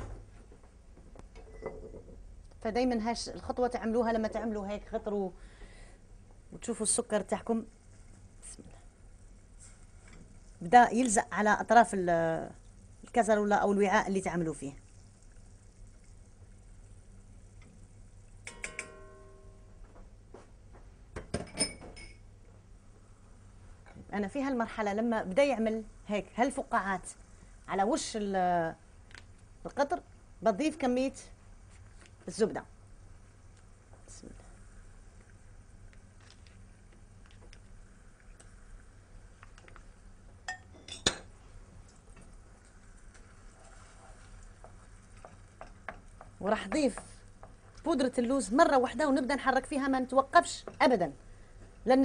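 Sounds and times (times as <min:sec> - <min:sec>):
low steady hum: 0:00.0 - 0:52.0
utensil tapping metal saucepan: 0:18.4 - 0:19.4.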